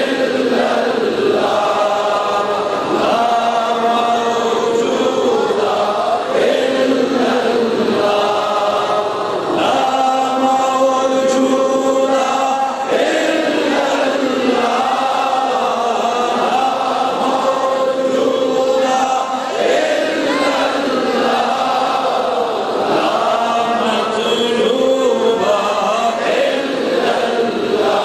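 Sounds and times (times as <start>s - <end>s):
man chanting: 1.6s - 19.5s, 23.0s - 26.6s.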